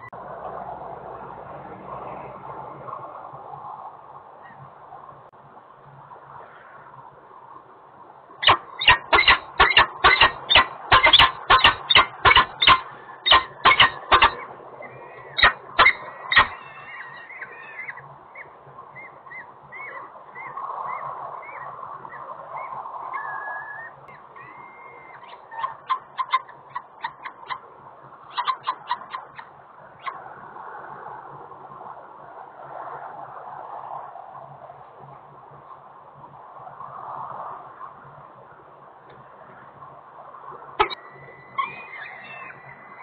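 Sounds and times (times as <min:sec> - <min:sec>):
chicks high chirps: 0:08.4 - 0:14.4, 0:15.4 - 0:21.7, 0:22.6 - 0:27.6, 0:28.3 - 0:30.2, 0:40.8 - 0:43.0.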